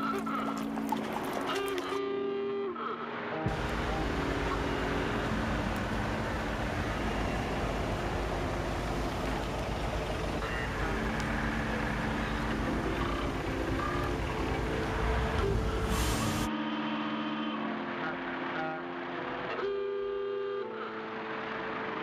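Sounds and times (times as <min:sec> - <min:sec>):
city traffic rumble: 0:03.5 - 0:16.5.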